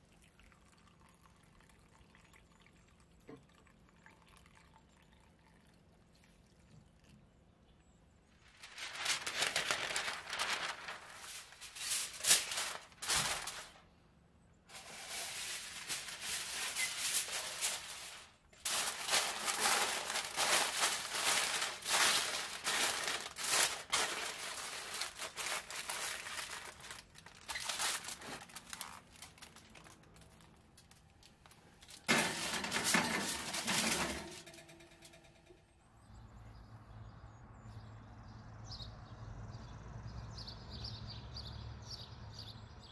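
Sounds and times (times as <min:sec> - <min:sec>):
foil and paper crinkling: 0:08.4 - 0:13.9, 0:14.7 - 0:34.5.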